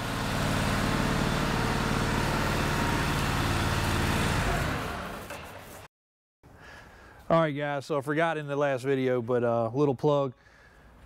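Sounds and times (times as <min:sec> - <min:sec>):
vehicle engine running steadily: 0:00.0 - 0:05.3.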